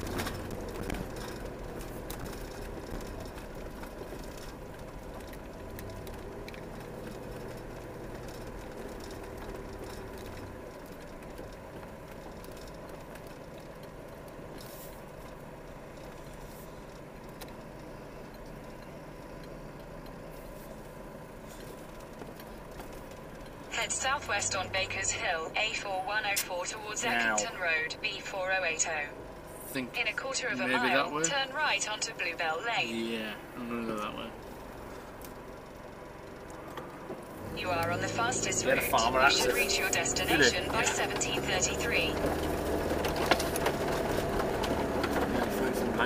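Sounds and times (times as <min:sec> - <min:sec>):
light clicks or rattles: 0:00.0 - 0:20.3
car engine and tyre noise: 0:00.0 - 0:46.0
low hum: 0:15.0 - 0:46.0.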